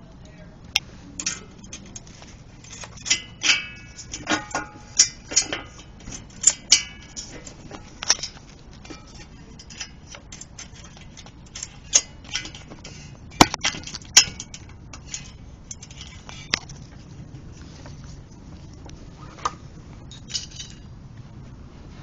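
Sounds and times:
sharp metal clanks: 0:01.2 - 0:17.0
metal tools clinking: 0:01.2 - 0:18.2, 0:19.4 - 0:20.9.

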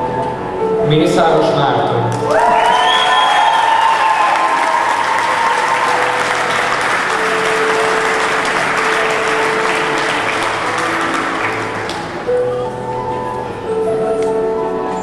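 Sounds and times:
audience applauding: 0:02.2 - 0:12.3.

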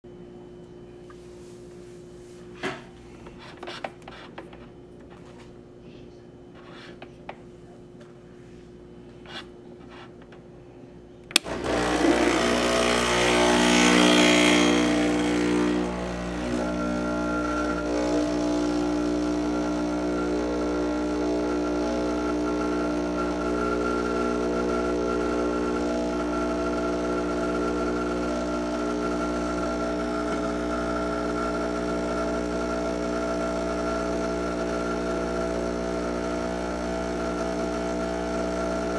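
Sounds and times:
pump switch click: 0:11.3 - 0:11.6
vibratory pump buzzing: 0:11.4 - 0:38.9.

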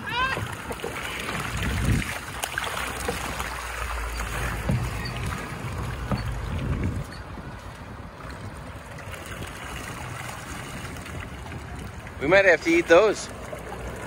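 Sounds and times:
low wind rumble: 0:00.0 - 0:14.0
water splashing and churning: 0:00.0 - 0:14.0.

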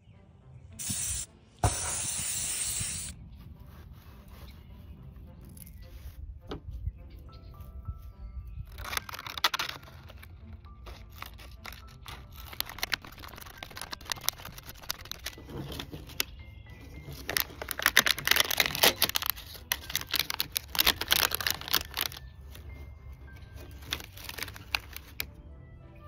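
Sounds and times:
dry fibre tearing and rustling: 0:08.7 - 0:25.3.

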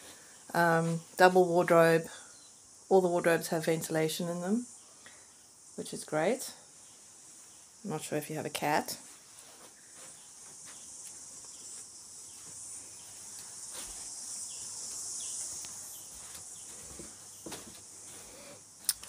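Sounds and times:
soft footfalls on carpet: 0:09.1 - 0:18.3
high-pitched insect-like buzz: 0:09.7 - 0:19.0.

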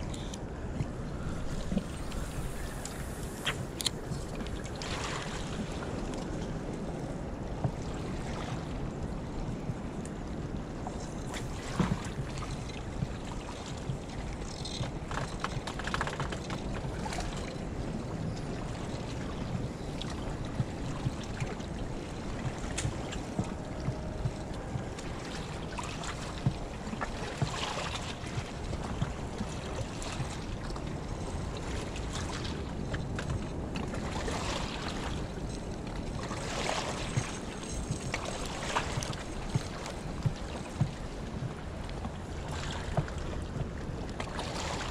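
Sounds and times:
water lapping on rocky shore: 0:00.0 - 0:06.9, 0:11.2 - 0:44.9
wind rumble on microphone: 0:00.0 - 0:44.9.

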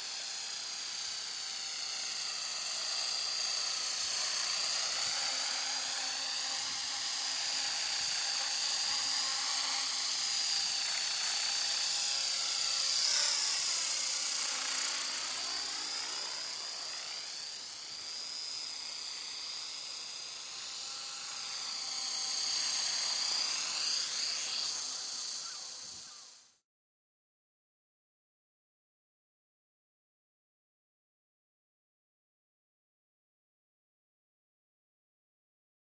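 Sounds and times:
rc helicopter motor whine: 0:00.0 - 0:26.6.

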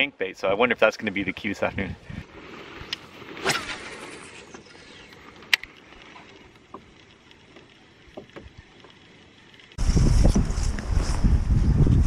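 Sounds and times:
fishing rod whoosh: 0:02.2 - 0:05.8
fishing line running off spool: 0:02.3 - 0:11.5.

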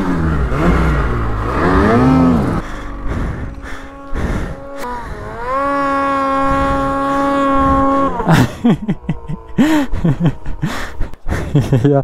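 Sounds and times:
person calling: 0:03.6 - 0:08.6.

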